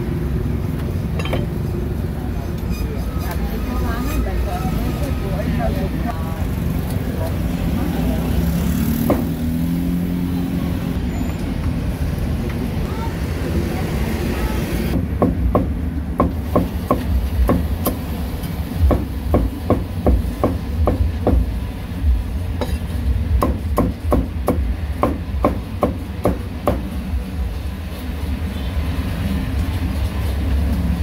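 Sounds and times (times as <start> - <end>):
cleaver chopping on wooden board: 9.0 - 9.4.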